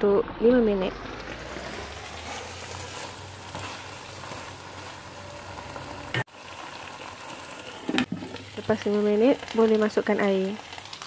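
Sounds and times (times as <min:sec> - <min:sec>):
curry paste sizzling in a wok: 0:01.0 - 0:11.0.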